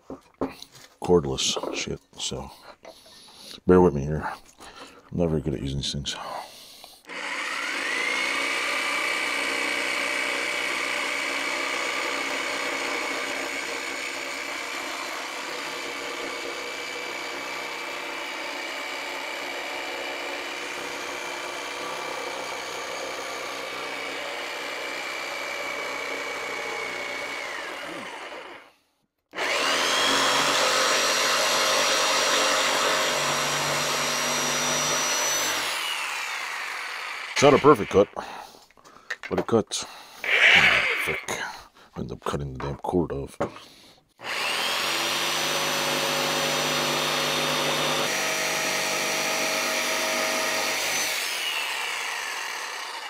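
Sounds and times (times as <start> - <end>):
jigsaw motor whine: 7.1 - 38.1, 40.2 - 41.3, 44.2 - 53.0.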